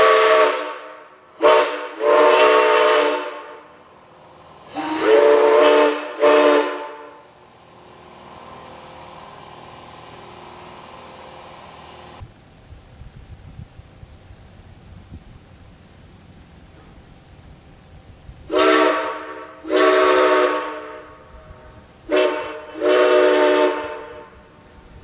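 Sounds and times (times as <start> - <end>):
steam whistle chord blasts: 0.0 - 3.8, 4.6 - 7.4, 18.5 - 24.6
faint air hiss: 0.0 - 25.0.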